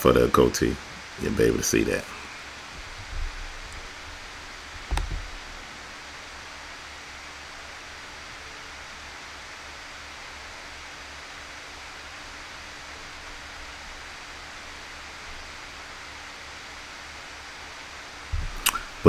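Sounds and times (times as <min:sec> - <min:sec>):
microphone hiss: 0:00.0 - 0:19.0
low thump: 0:04.8 - 0:05.5, 0:18.3 - 0:18.7.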